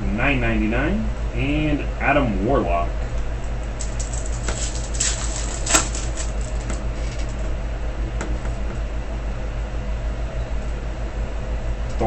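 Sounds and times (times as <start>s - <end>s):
steady low hum: 0.0s - 12.0s
foil wrapper crinkling and tearing: 3.8s - 7.4s.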